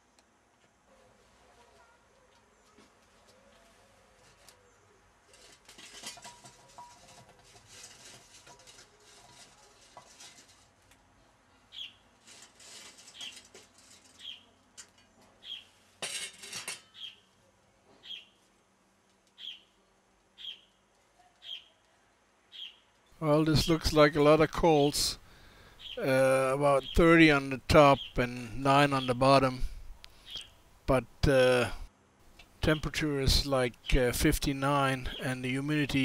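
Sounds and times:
charcoal clattering on metal lid: 5.3 - 10.8, 16.0 - 16.9
bird chirping: 11.7 - 12.0, 14.2 - 14.6, 15.4 - 15.8, 16.9 - 17.3, 17.9 - 18.4, 19.4 - 21.8, 22.5 - 23.0, 25.6 - 26.1, 26.7 - 29.4, 30.1 - 30.6.

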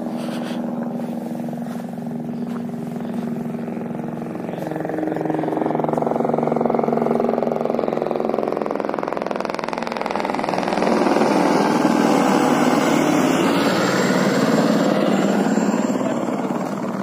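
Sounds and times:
helicopter in flight: 0.0 - 17.0.

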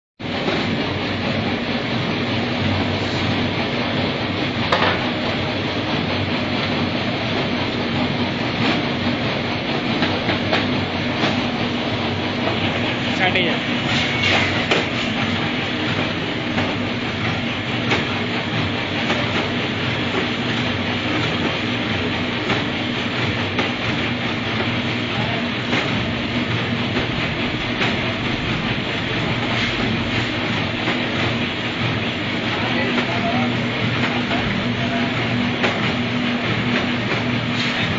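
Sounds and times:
packaging machine hum and clatter: 0.2 - 37.9
low hum: 26.2 - 32.0.

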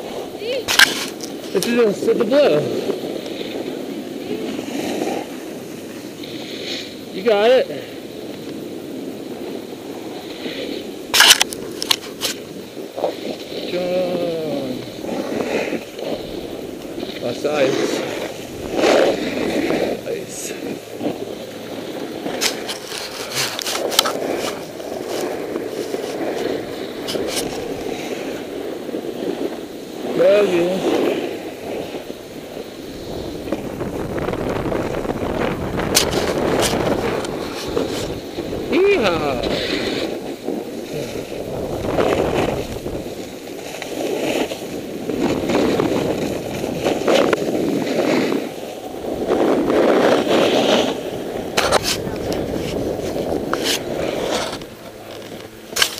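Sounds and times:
snowboard scraping icy snow: 0.0 - 55.9
snowboard chattering clicks: 22.0 - 28.0, 34.4 - 48.5.

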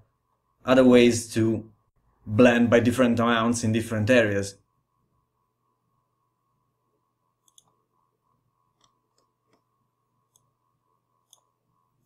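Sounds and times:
faint steady hum: 0.0 - 12.0
computer mouse clicks: 7.4 - 7.8, 8.8 - 9.7, 10.3 - 10.5, 11.2 - 11.5.

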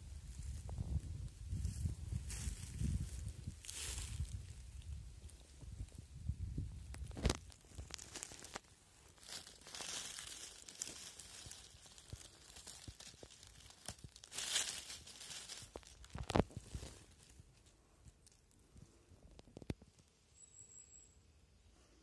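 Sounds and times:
dry leaves rustling and crackling: 1.6 - 5.5, 6.8 - 18.6
twigs snapping: 6.8 - 18.6.

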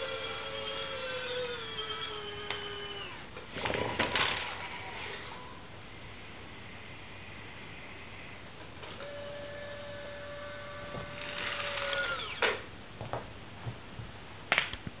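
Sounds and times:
small electric motor whining: 0.0 - 3.2, 8.9 - 12.6.

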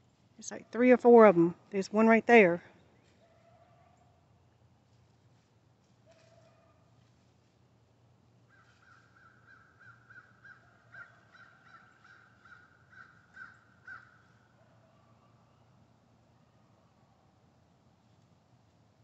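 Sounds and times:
animal calling in crow-like notes: 8.5 - 14.3.

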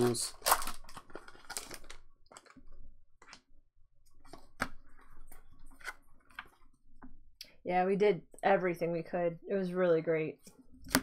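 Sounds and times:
trading cards flipped by hand: 4.2 - 6.7.

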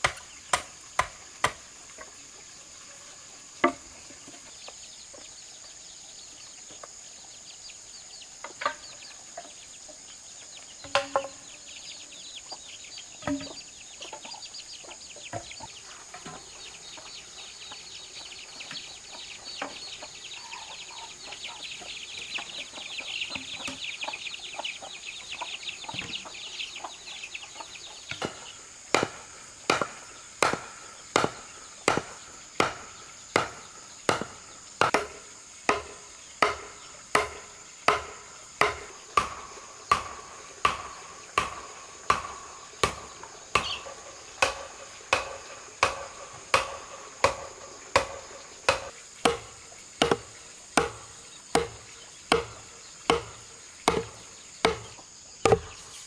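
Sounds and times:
stake hammered into ground: 0.0 - 1.7, 28.1 - 56.0
high insect drone: 0.0 - 56.0
hen clucking: 18.6 - 28.3.

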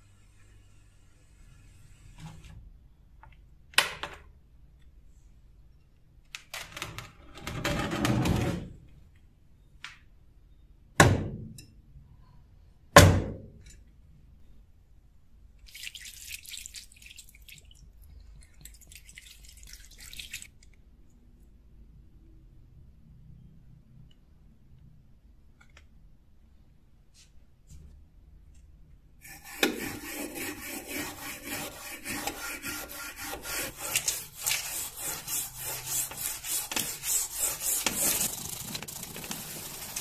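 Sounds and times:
liquid splashing: 15.6 - 20.6.

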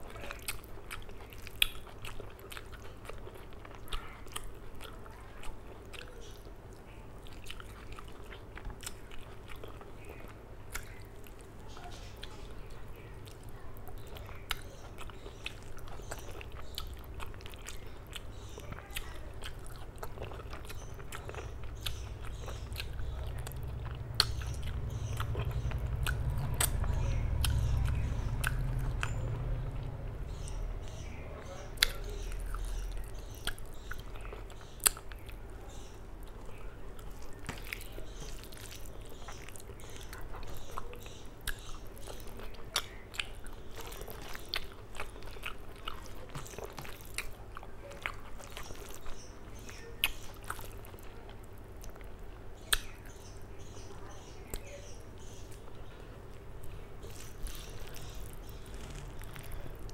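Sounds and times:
lip and tongue clicks: 0.0 - 6.5, 14.0 - 31.1, 31.8 - 36.4, 37.0 - 53.2
close chewing and mouth sounds: 0.0 - 59.9
low rumble: 22.4 - 31.2.

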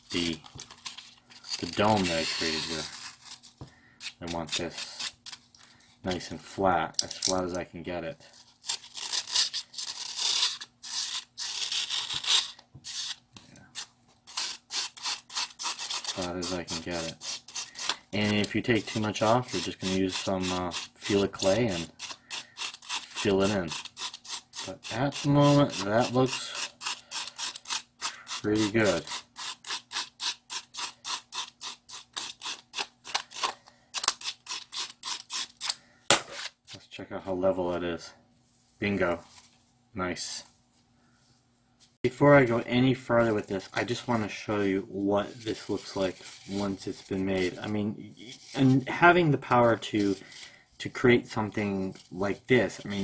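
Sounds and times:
knife scraping floral foam: 13.8 - 33.5.

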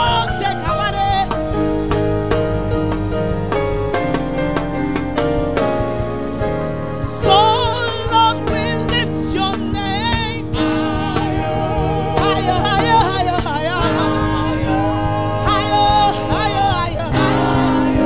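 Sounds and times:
person singing gospel: 0.0 - 2.4, 6.9 - 18.0
band playing low chords: 0.0 - 18.0.

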